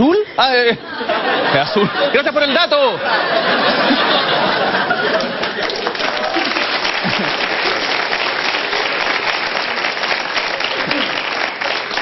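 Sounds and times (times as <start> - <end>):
audience clapping: 4.5 - 12.0.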